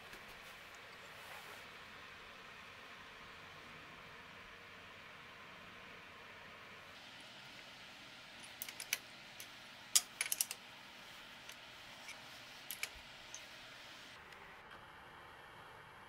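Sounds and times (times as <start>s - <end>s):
spanner clicking on metal: 8.4s - 10.6s.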